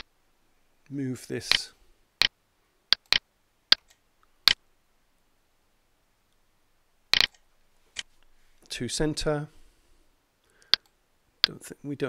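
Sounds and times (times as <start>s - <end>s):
computer mouse clicks: 2.9s - 4.6s, 7.2s - 8.1s, 10.6s - 11.6s.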